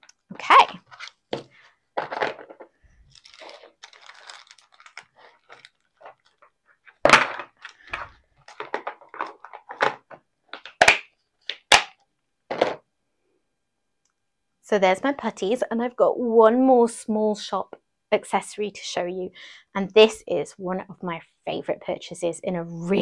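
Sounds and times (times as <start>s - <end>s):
foil pouch rustling: 0.8s - 9.9s.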